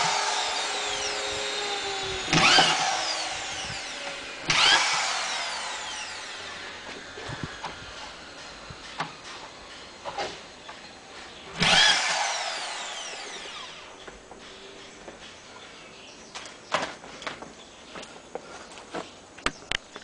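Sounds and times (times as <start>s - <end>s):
power drill whining: 0.0s - 10.3s, 11.6s - 14.1s.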